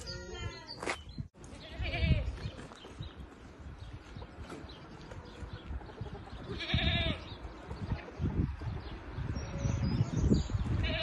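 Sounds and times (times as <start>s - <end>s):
goat bleating: 0.0s - 0.7s, 1.5s - 2.3s, 6.5s - 7.3s.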